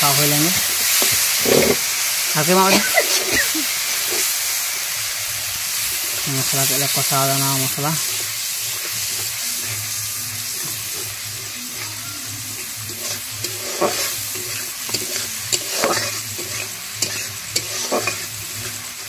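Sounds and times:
spice paste sizzling in a pan: 0.0s - 19.0s
metal spatula scraping a pan: 0.1s - 1.9s, 7.6s - 19.0s.

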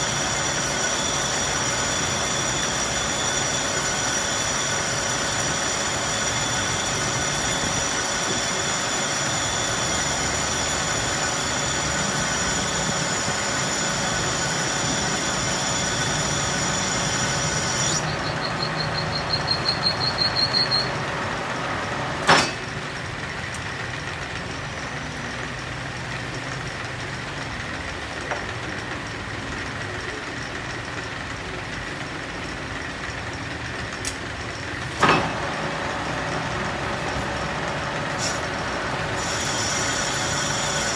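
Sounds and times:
high-pitched cutting squeal: 0.0s - 23.0s, 35.1s - 40.9s
metal lathe running: 0.0s - 40.9s
sharp metallic knock: 22.2s - 22.7s.

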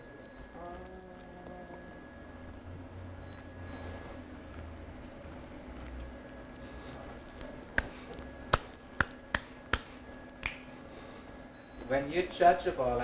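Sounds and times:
faint steady hum: 0.0s - 13.0s
sharp hand claps: 7.8s - 10.7s.

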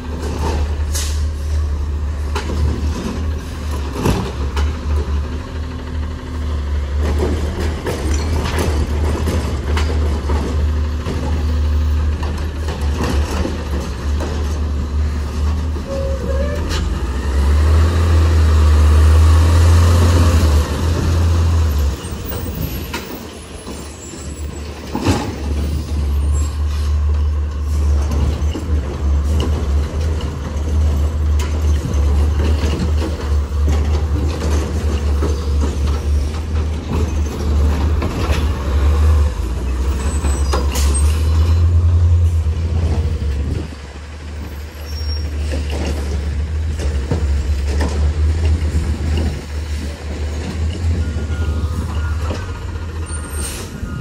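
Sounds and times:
garbage truck engine rumbling: 0.0s - 54.0s
air brakes hissing: 0.9s - 1.6s, 53.1s - 54.0s.

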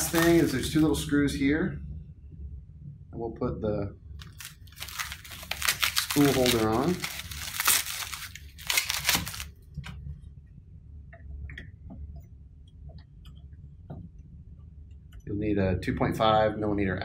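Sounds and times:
plastic bag crinkling: 0.0s - 1.0s, 4.2s - 9.6s
faint clicks and taps: 11.1s - 15.3s.

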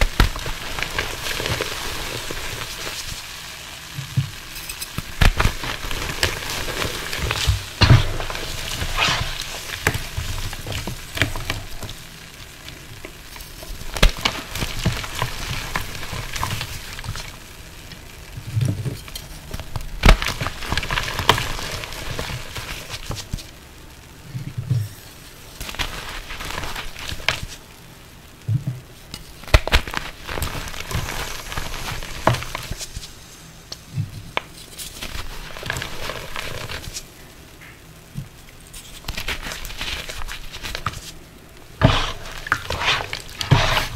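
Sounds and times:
wet chalk crumbling and sizzling: 0.0s - 43.9s
chalk crunching: 5.3s - 11.9s, 41.8s - 43.9s.

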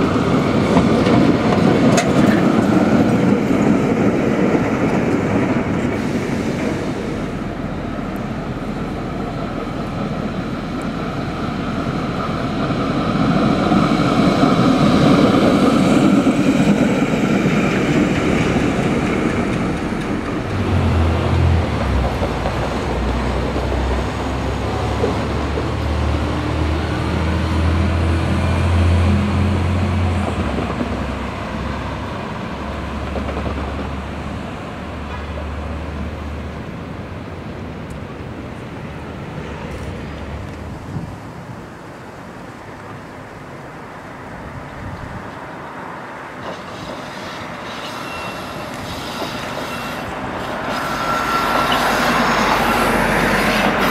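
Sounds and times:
street traffic: 0.0s - 53.9s
streetcar wheels rumbling on rails: 0.0s - 53.9s.

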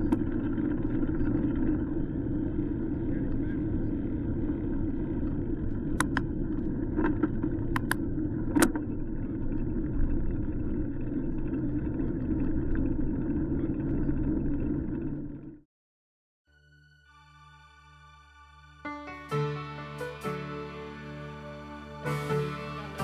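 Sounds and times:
steady low rumble: 0.0s - 15.6s.

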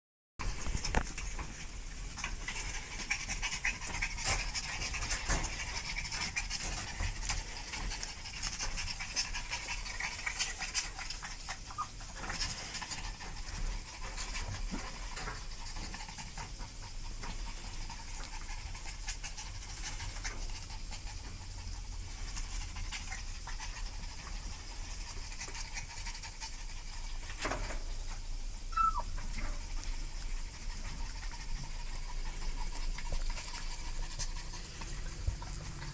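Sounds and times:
puppies panting: 0.6s - 35.9s
puppies squeaking: 10.3s - 12.6s, 28.7s - 29.4s
puppy whimpering: 10.3s - 12.6s, 28.7s - 29.4s.

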